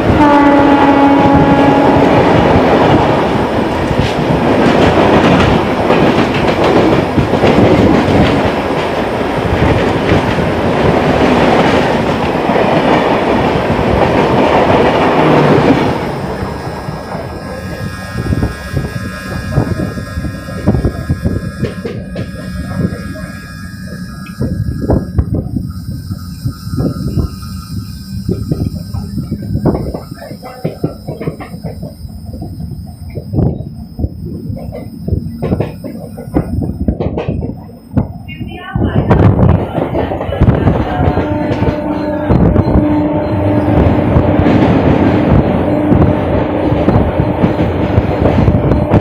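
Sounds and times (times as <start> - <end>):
train horn: 0.0 - 3.4, 14.7 - 31.7, 40.4 - 49.0
passing train rushing and clattering: 0.0 - 49.0
train wheels clattering over rail joints: 1.0 - 16.5, 17.1 - 49.0.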